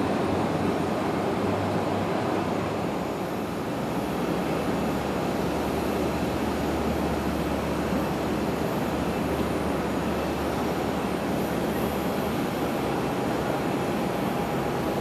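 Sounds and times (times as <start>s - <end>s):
muffled jet engines rumbling: 0.0s - 15.0s.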